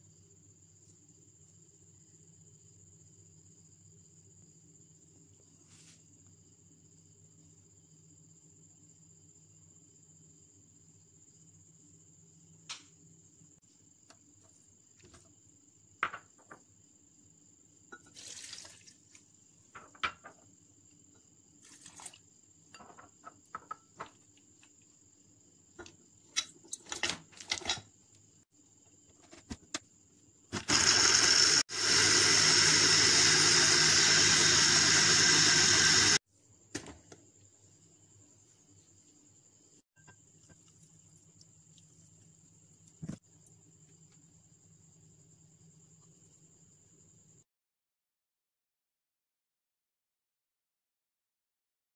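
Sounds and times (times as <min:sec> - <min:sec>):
electric blender running: 0:30.5 - 0:36.2.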